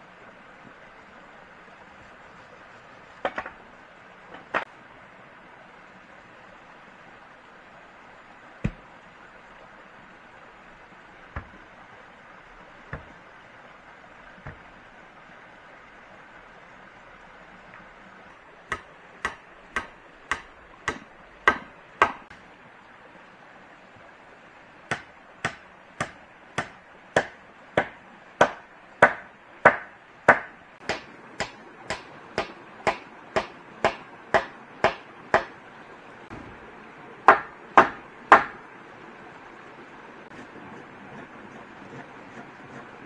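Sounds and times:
hand tool striking wood: 0:03.2 - 0:03.6, 0:12.9 - 0:13.2, 0:14.4 - 0:14.6, 0:18.7 - 0:22.3, 0:24.9 - 0:35.5, 0:37.3 - 0:38.6.

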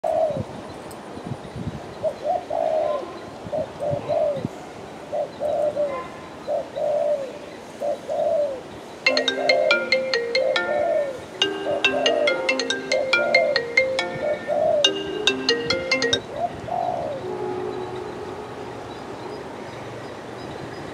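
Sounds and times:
dove cooing: 0:02.2 - 0:04.5
plinking marimba-like music: 0:09.1 - 0:16.4.

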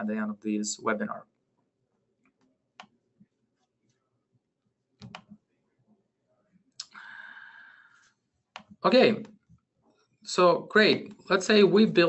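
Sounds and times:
computer mouse clicks: 0:02.2 - 0:03.0, 0:05.0 - 0:05.4, 0:08.5 - 0:08.8
breath into microphone: 0:06.9 - 0:08.2.

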